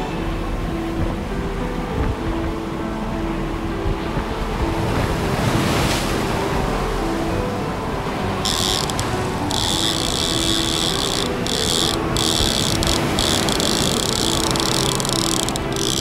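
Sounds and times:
wind: 0.0s - 16.0s
water noise: 7.4s - 16.0s
fishing reel drag buzzing: 8.4s - 16.0s.

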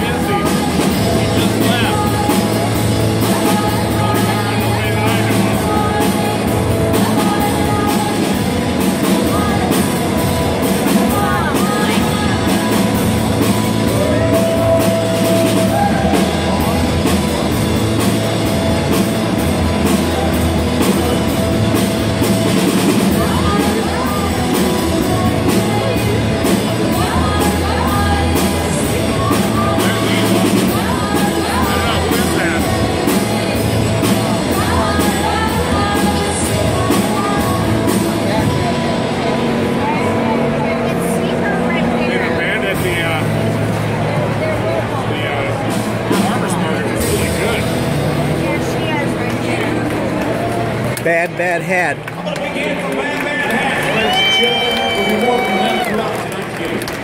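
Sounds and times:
person singing: 0.0s - 18.2s, 22.6s - 41.0s
drum kit beat: 0.0s - 41.0s, 42.6s - 50.0s
guitars: 0.0s - 52.0s.

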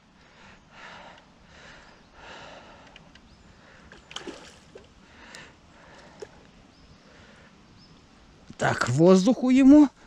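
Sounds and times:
man breathing heavily: 0.0s - 4.0s, 5.0s - 6.4s.

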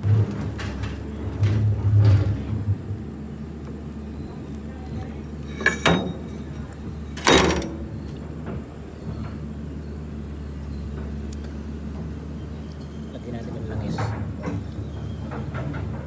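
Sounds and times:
low mechanical hum: 0.0s - 16.0s
short metallic clatters: 5.4s - 7.8s.

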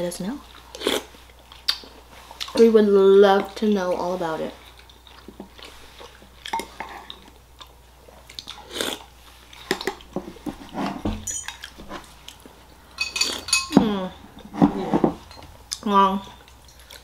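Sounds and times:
person chewing and smacking: 0.5s - 2.6s, 4.6s - 10.5s, 11.4s - 12.5s, 16.4s - 17.0s
wet mouth clicks: 1.6s - 1.9s
spoon clinking ceramic bowl: 13.0s - 13.8s.

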